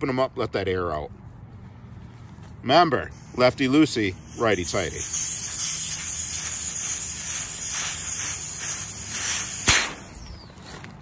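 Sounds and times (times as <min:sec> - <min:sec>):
air hissing out of valve: 0:03.1 - 0:10.4.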